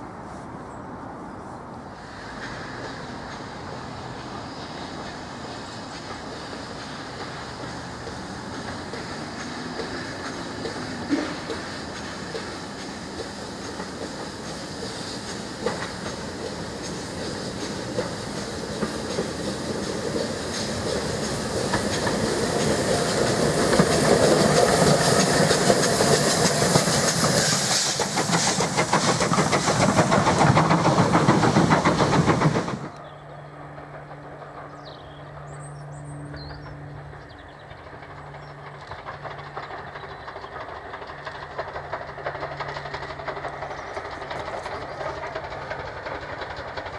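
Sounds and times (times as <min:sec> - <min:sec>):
steam locomotive passing: 0:00.0 - 0:46.9
hissing steam: 0:01.8 - 0:33.0, 0:37.7 - 0:46.9
rail clatter: 0:02.0 - 0:46.9
bird chirps: 0:33.0 - 0:33.6, 0:34.6 - 0:38.8.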